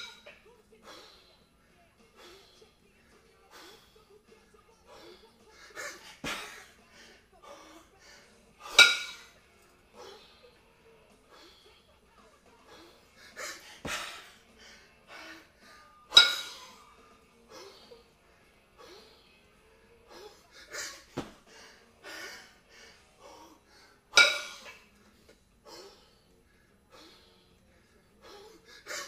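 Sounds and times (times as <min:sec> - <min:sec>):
kettlebells clanking together: 0:00.0 - 0:00.3, 0:08.6 - 0:09.3, 0:16.1 - 0:16.7, 0:24.2 - 0:24.8
hard rhythmic breathing: 0:00.0 - 0:29.0.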